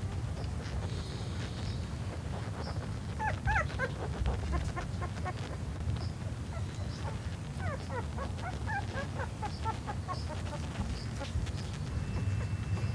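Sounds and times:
puppies squeaking and whimpering: 2.2s - 12.9s.

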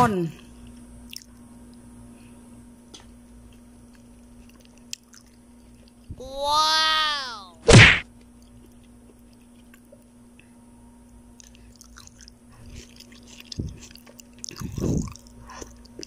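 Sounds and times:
faint low hum: 0.0s - 16.0s
person chewing: 1.1s - 1.3s, 3.9s - 6.1s, 11.4s - 16.0s.

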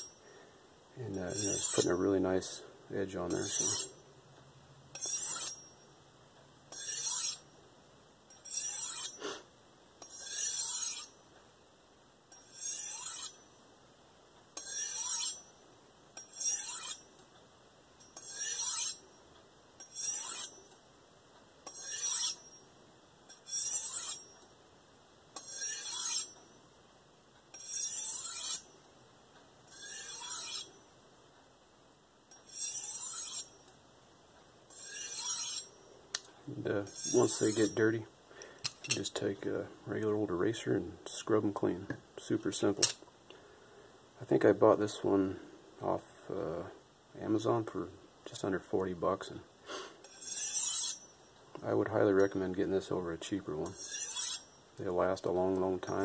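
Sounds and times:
knife blade rasping on honing rod: 1.1s - 2.1s, 3.3s - 4.0s, 4.9s - 5.8s, 6.7s - 7.5s, 8.4s - 9.3s, 10.0s - 11.2s, 12.3s - 13.4s, 14.6s - 15.5s, 16.2s - 17.0s, 18.0s - 19.1s, 19.8s - 20.6s, 21.6s - 22.6s, 23.3s - 24.4s, 25.4s - 26.5s, 27.5s - 28.7s, 29.7s - 30.8s, 32.4s - 33.7s, 34.7s - 35.7s, 36.9s - 37.9s, 50.0s - 51.2s, 53.6s - 54.6s.

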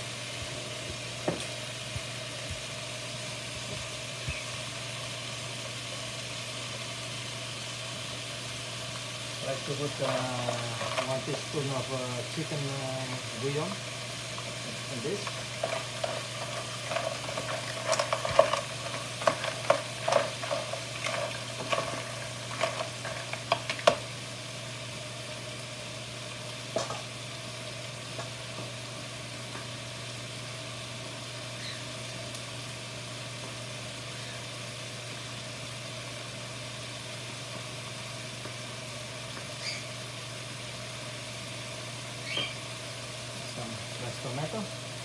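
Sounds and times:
pan sizzling: 0.0s - 45.0s
shells clattering in a skillet: 9.7s - 12.8s, 14.5s - 24.1s.

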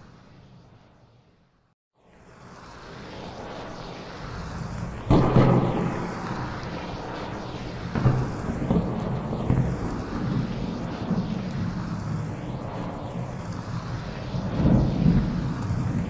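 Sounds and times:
thunderclaps: 4.8s - 16.0s
rolling thunder rumbles: 4.9s - 16.0s.

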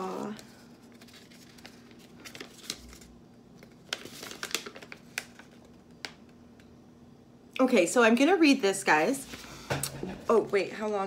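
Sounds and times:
paper crackling and rustling: 0.0s - 6.3s.

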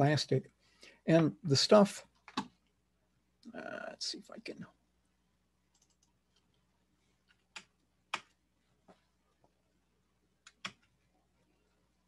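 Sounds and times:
computer mouse clicks: 5.7s - 6.6s, 7.2s - 8.4s, 10.4s - 10.9s.

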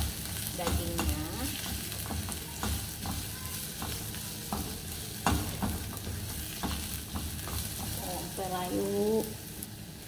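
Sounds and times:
spatula scraping and knocking pan: 0.0s - 8.8s
onions sizzling in oil: 0.0s - 10.0s.

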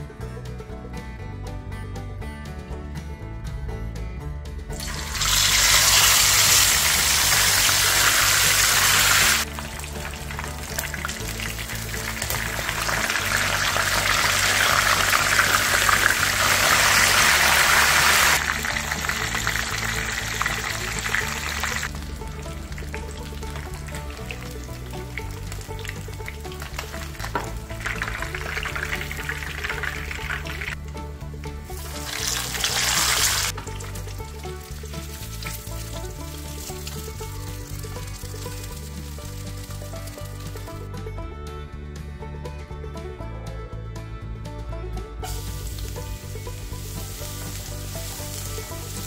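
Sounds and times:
background music: 0.0s - 49.0s
fish sizzling in hot oil: 4.8s - 22.0s, 26.2s - 30.8s, 32.0s - 34.0s, 46.8s - 49.0s.

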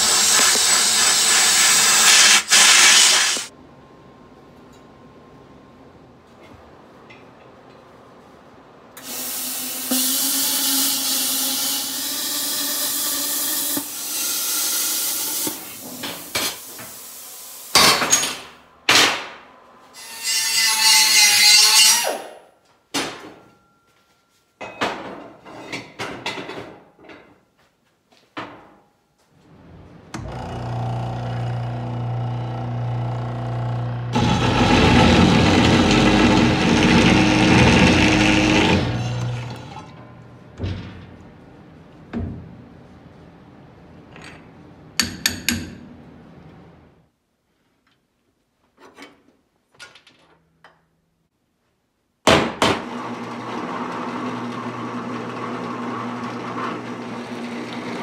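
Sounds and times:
saw motor humming: 0.0s - 2.2s, 30.2s - 39.9s
saw blade grinding through steel: 20.0s - 22.4s.

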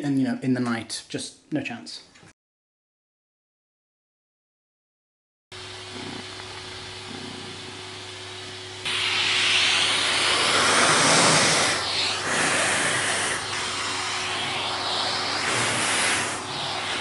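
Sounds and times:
vacuum suction hiss: 5.6s - 17.0s.

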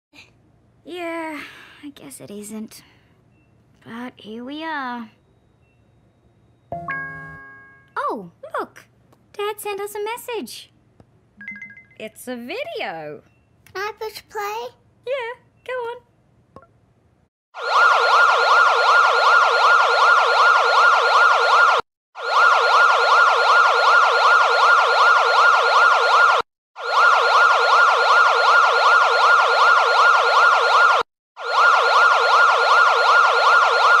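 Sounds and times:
electronic warbling siren: 17.6s - 34.0s.

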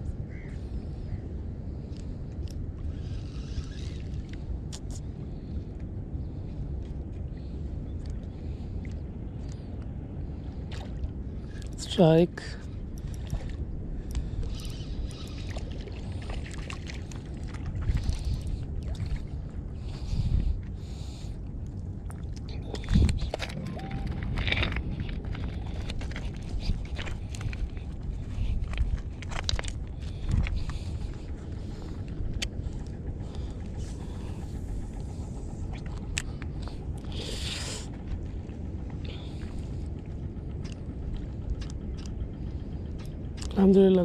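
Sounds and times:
wind on the microphone: 0.0s - 43.9s
fishing reel clicks: 3.0s - 4.3s, 14.4s - 15.4s.

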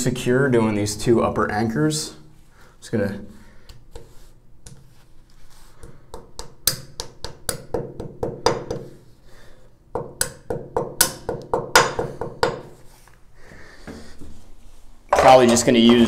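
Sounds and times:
hammer tapping wall anchors: 5.8s - 9.0s, 9.9s - 12.7s.

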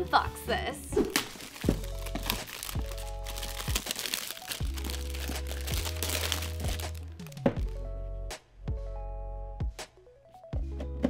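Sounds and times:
plastic bag crinkling: 1.1s - 7.8s
background music with bass: 4.6s - 9.9s, 10.6s - 11.0s.

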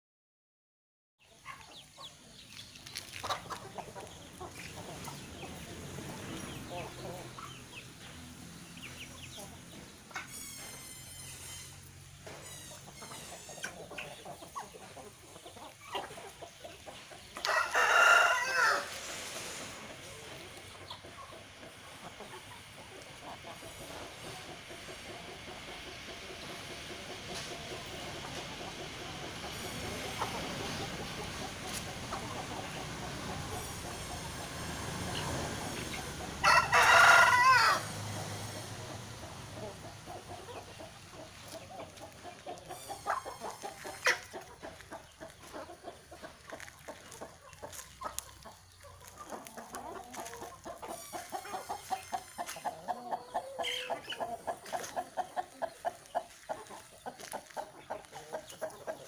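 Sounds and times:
chickens clucking: 1.2s - 59.0s
rooster crowing: 17.4s - 18.9s, 36.4s - 38.1s.

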